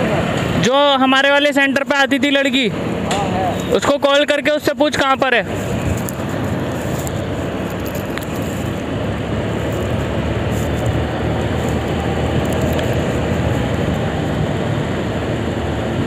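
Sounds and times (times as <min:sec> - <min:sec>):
road rumble: 0:00.0 - 0:16.0
wind noise: 0:05.0 - 0:16.0
scooter engine running: 0:05.4 - 0:16.0.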